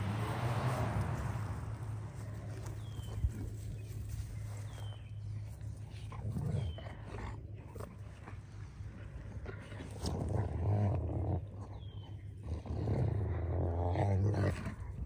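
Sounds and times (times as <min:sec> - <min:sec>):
dog growling: 0:06.0 - 0:15.0.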